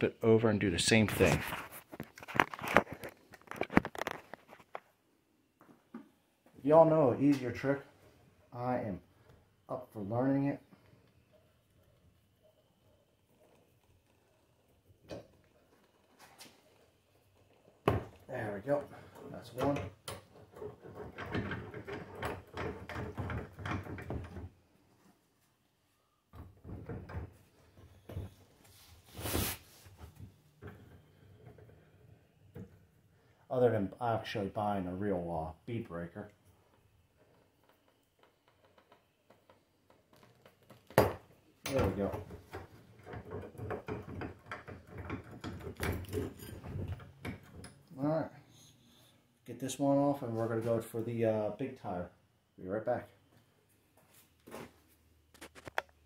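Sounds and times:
metal clatter and knocks: 0:19.0 - 0:24.5, 0:40.1 - 0:47.9.

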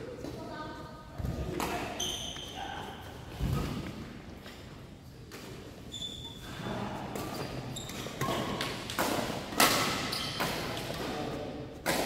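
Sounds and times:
shoe squeaks on court floor: 0:01.9 - 0:02.6, 0:05.8 - 0:06.6, 0:07.2 - 0:08.6, 0:10.0 - 0:10.6
racket hitting shuttlecock: 0:08.0 - 0:12.0.

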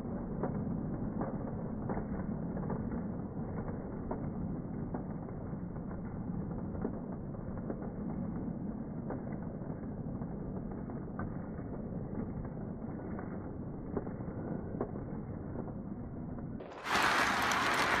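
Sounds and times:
loud rush of noise: 0:16.6 - 0:18.0
model train wheels rumbling: 0:16.6 - 0:18.0.

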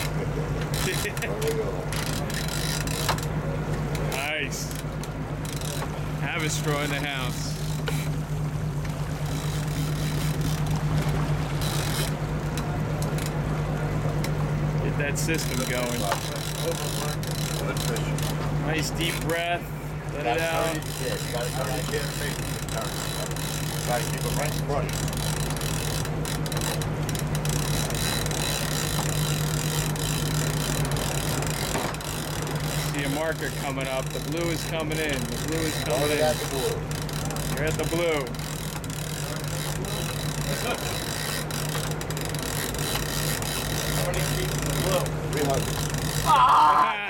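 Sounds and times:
boat engine humming: 0:00.0 - 0:47.0
water noise: 0:00.0 - 0:47.0
wind: 0:00.0 - 0:47.0
faint clicks: 0:08.8 - 0:13.4.

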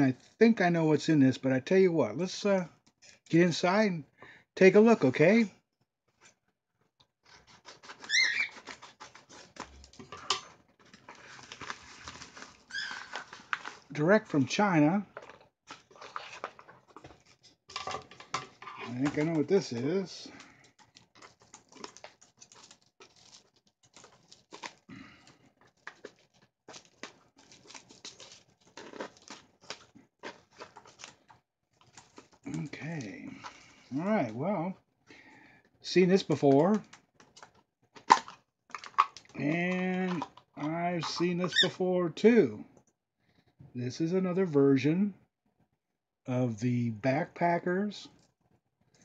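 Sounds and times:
short high squeak: 0:08.0 - 0:08.6
plastic pouch crinkling: 0:10.8 - 0:14.0, 0:15.2 - 0:17.5, 0:20.4 - 0:32.7.

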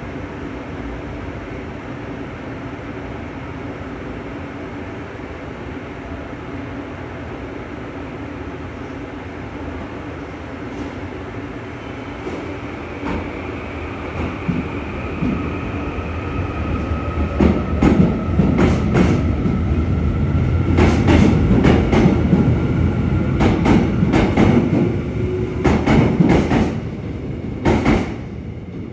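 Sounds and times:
train rumble: 0:00.0 - 0:28.9
train wheels clacking over rail joint: 0:25.6 - 0:26.8, 0:27.6 - 0:28.2.

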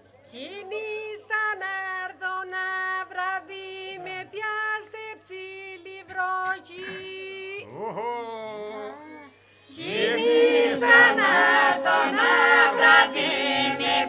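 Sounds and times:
woman singing unaccompanied: 0:00.3 - 0:07.7.

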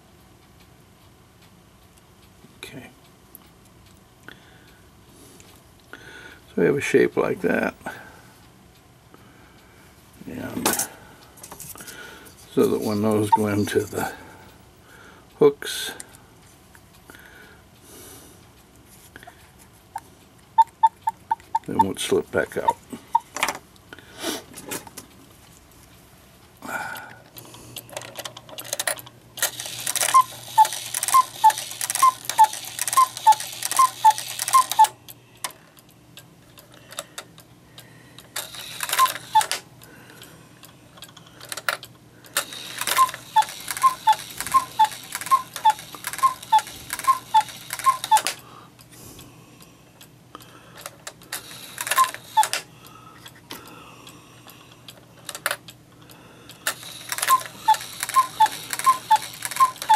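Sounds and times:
faint clock ticking: 0:00.0 - 0:06.4, 0:20.0 - 0:23.9
two-note cuckoo calls: 0:30.1 - 0:34.9, 0:43.0 - 0:48.2, 0:57.2 - 0:59.9.

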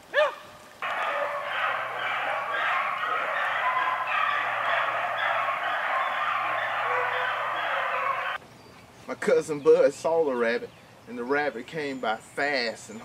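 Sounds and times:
dogs baying in chorus: 0:00.1 - 0:08.4.

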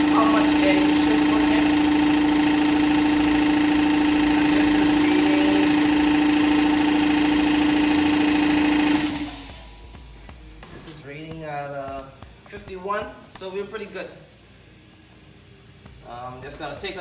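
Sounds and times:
air compressor motor hum: 0:00.0 - 0:17.0
hiss of released air: 0:08.8 - 0:10.1.

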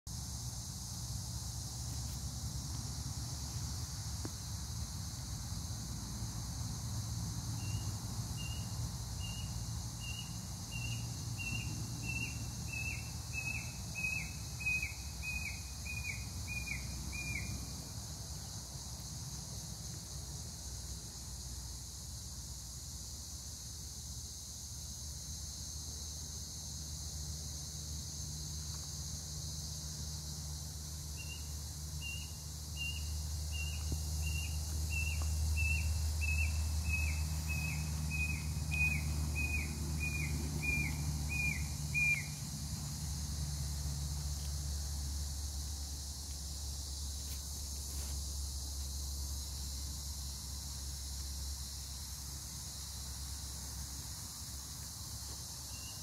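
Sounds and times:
high-pitched insect drone: 0:22.5 - 0:56.0.

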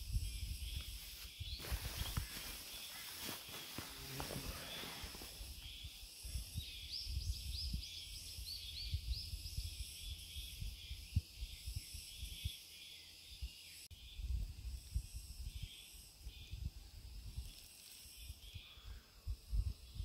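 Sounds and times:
wind on microphone: 0:00.0 - 0:02.6, 0:04.0 - 0:12.5, 0:18.4 - 0:20.0
insects droning: 0:00.0 - 0:20.0
bird chirping: 0:00.1 - 0:14.4.

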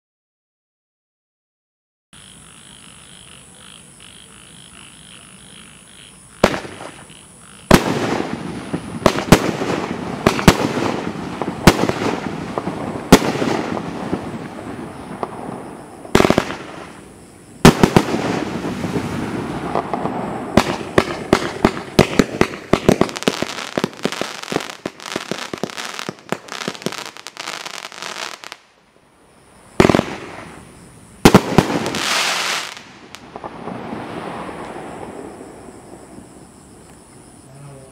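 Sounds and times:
faint hiss: 0:03.3 - 0:37.9
fireworks shots firing: 0:06.4 - 0:28.7, 0:29.8 - 0:36.3.

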